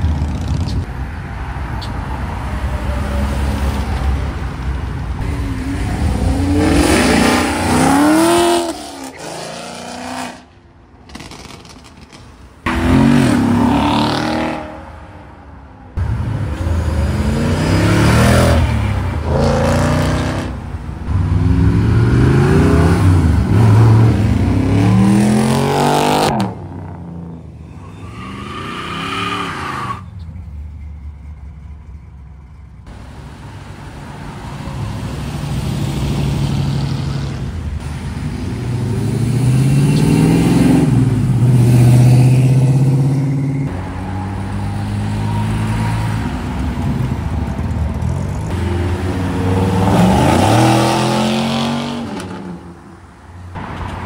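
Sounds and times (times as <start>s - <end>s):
car engines revving past: 12.7s - 15.1s, 33.9s - 54.0s.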